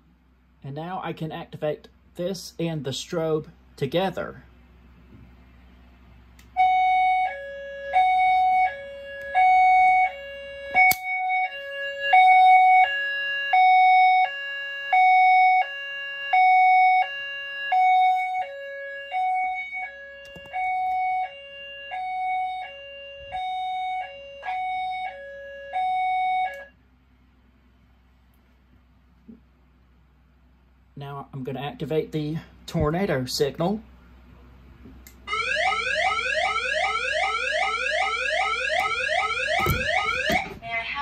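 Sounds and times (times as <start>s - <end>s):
high-low two-tone fire alarm: 6.6s - 26.8s, 35.3s - 40.7s
sharp click: 10.9s - 11.1s.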